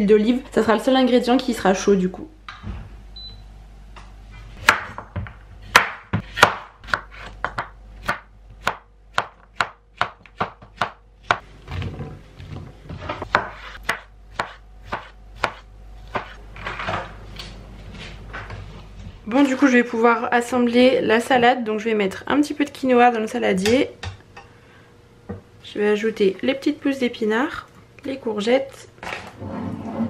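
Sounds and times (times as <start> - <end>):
knife chopping on wooden board: 4.6 - 11.4, 13.0 - 16.4.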